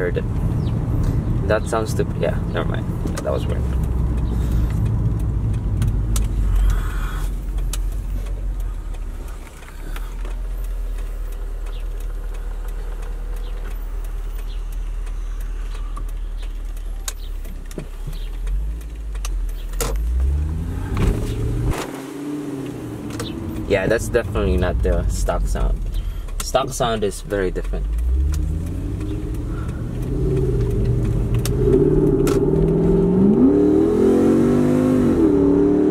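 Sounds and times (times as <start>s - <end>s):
car engine droning: 0.0s - 35.9s.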